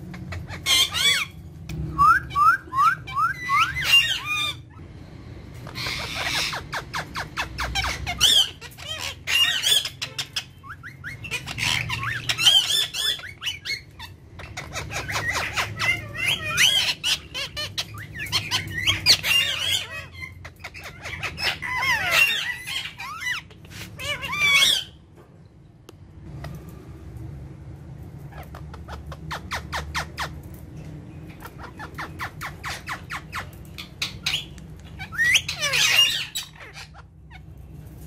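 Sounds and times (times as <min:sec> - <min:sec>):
parakeets chattering: 0:00.0 - 0:25.1, 0:27.2 - 0:38.0.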